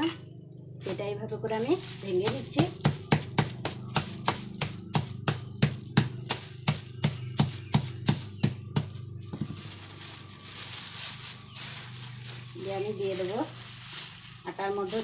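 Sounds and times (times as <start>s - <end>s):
stone pestle pounding on concrete: 2.8s - 9.4s.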